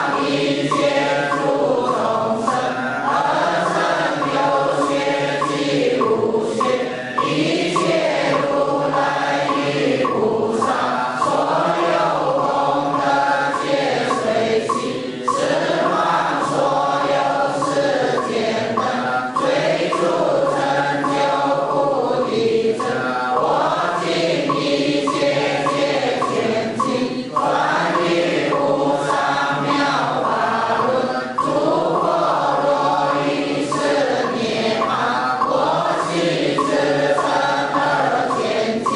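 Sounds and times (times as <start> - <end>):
group chanting in unison: 0.0 - 38.9.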